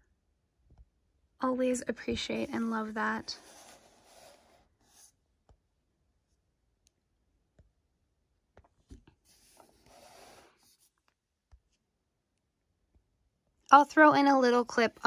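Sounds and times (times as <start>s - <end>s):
soft rustle: 2.1s - 5.2s, 9.2s - 11.8s.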